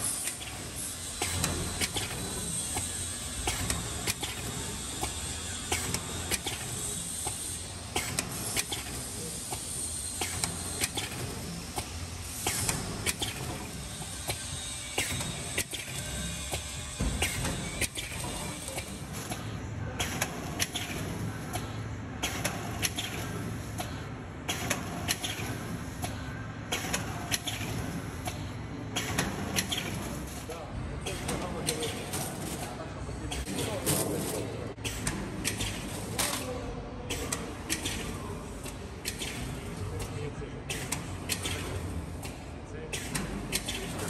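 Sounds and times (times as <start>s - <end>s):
machine clacks: 0.0s - 44.0s
packaging machine hiss and hum: 0.0s - 44.0s.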